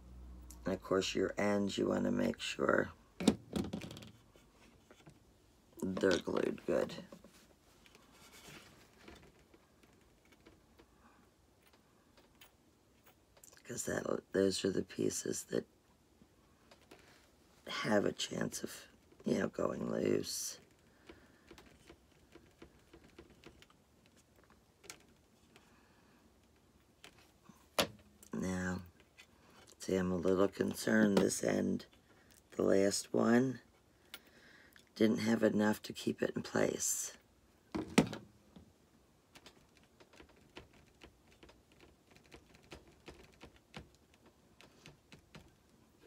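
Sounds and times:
fingertips clicking and tapping: 20.6 - 25.7, 39.3 - 46.0.

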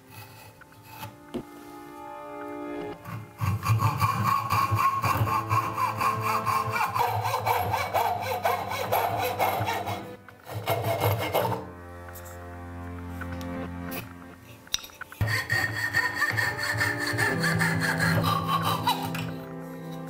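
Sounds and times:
hacksaw cutting wood: 0.0 - 1.4, 3.0 - 12.5, 15.0 - 20.0.

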